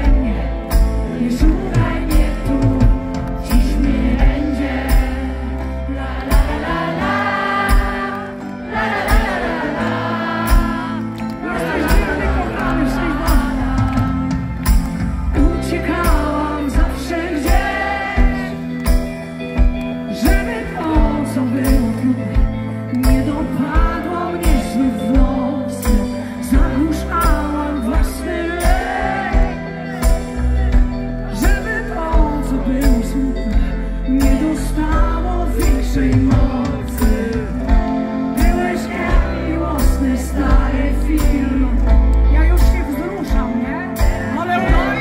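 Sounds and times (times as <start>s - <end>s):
live pop-rock band: 0.0s - 45.0s
woman singing lead: 0.0s - 45.0s.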